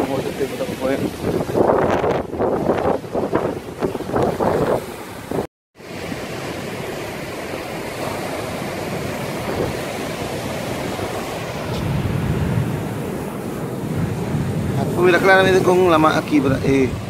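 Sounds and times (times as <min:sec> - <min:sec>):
wind buffeting microphone: 0:00.0 - 0:05.5, 0:08.1 - 0:17.0
surf breaking on rocky shore: 0:00.0 - 0:17.0.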